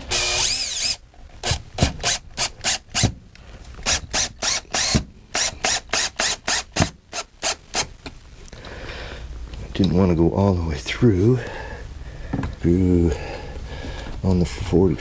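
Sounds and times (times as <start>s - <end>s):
cordless drill bursts: 0.0s - 3.1s, 3.8s - 7.9s.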